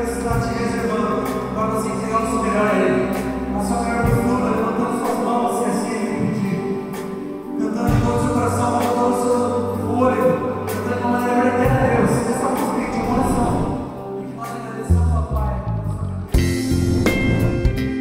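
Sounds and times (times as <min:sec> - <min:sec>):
held bass notes: 0:10.6 - 0:14.2, 0:14.9 - 0:18.0.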